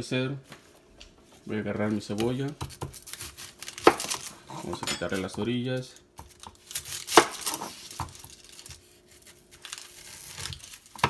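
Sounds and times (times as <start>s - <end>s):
knife scraping: 2.3s - 5.4s, 6.7s - 11.0s.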